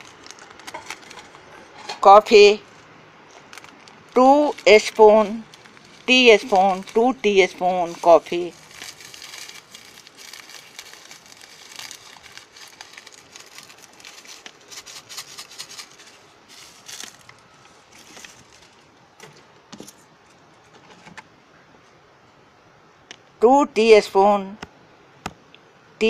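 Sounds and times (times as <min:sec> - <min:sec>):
foil sachet crinkling: 0:00.0 - 0:01.5, 0:02.6 - 0:19.0.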